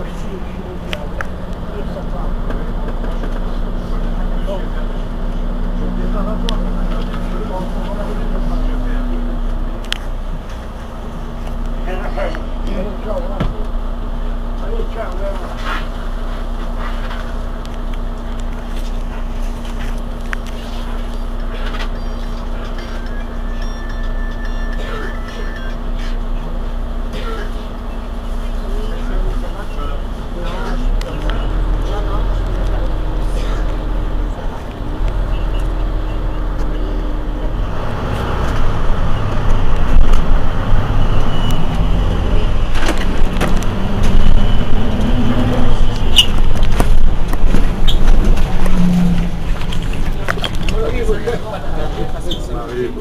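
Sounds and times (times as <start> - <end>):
bus diesel engine idling: 0.0 - 53.0
high electronic beeping: 21.3 - 26.4, 38.3 - 42.8, 43.8 - 46.7.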